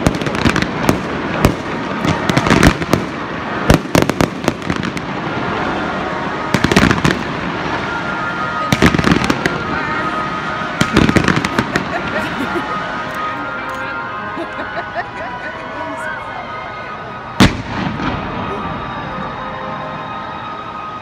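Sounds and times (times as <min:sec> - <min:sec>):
fireworks bangs and crackling pops: 0:00.0 - 0:13.3, 0:17.3 - 0:18.7.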